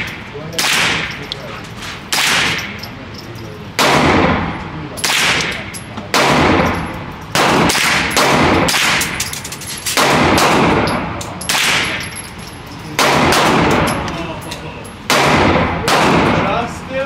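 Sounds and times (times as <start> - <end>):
loud gunshots with echo: 0.0 - 1.2, 2.1 - 2.8, 3.8 - 9.2, 10.0 - 12.1, 13.0 - 14.1, 15.1 - 16.6.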